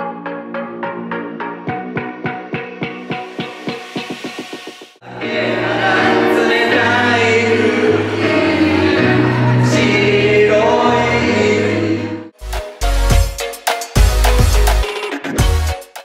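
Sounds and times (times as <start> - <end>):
people singing into microphones: 5.0 - 12.3
backing track with bass line: 12.4 - 16.0.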